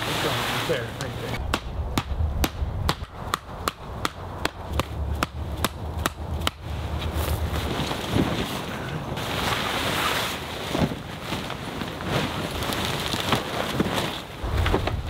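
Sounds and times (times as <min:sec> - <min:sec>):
low rumble: 0:14.4 - 0:15.0.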